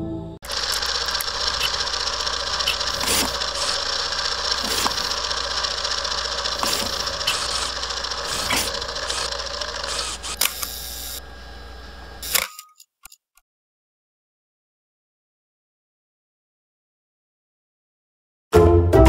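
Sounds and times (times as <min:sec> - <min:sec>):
music: 0:00.0 - 0:00.4, 0:18.5 - 0:19.0
film projector whirring: 0:00.4 - 0:12.5.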